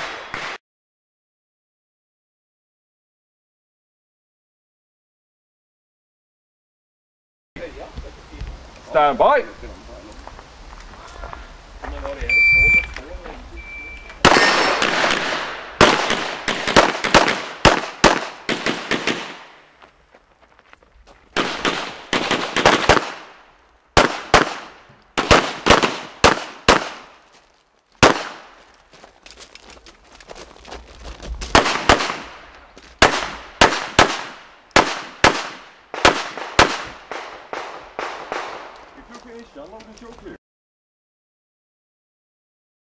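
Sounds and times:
rapid pistol fire with echo: 14.2 - 19.6, 21.4 - 23.4, 24.0 - 27.1, 28.0 - 28.5, 31.5 - 32.4, 33.0 - 38.7.

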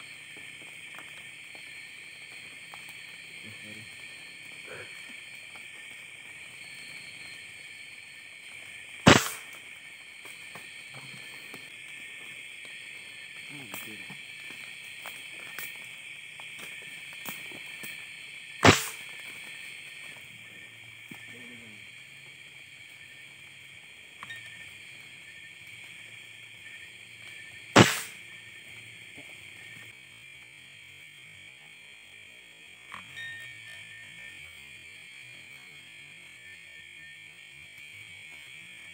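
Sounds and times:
crickets and night insects: 0.0 - 38.9
rifle shot: 9.1 - 9.5, 18.6 - 19.0, 27.8 - 28.2.

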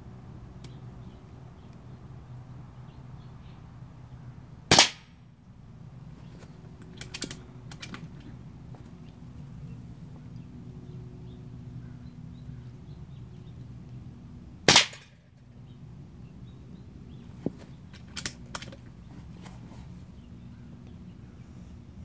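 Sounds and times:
air pistol shot: 4.7 - 5.1, 14.7 - 15.2.

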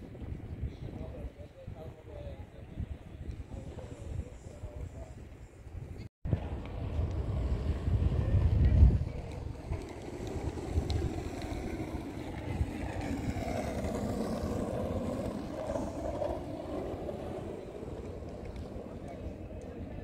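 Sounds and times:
wind buffeting microphone: 0.0 - 20.0
engine hum: 6.4 - 20.0.

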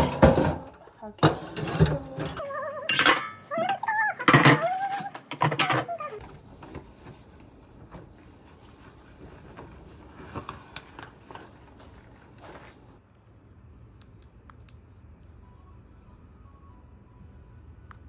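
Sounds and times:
pet crying high-pitched: 2.4 - 6.2.

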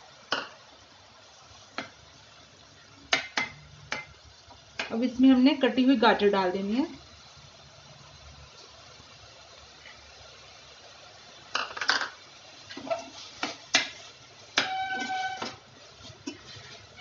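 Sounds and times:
pot ringing: 14.6 - 15.5
metal spoon scraping pot: 14.6 - 17.0.

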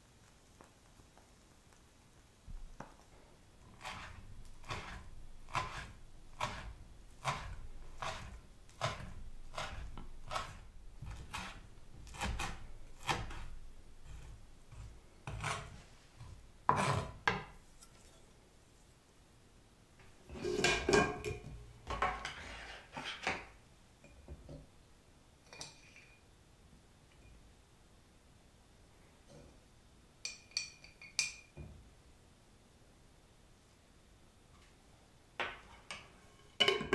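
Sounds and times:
blade scraping across board: 3.7 - 15.9, 16.7 - 17.2
knife chopping on wooden board: 3.8 - 13.5.

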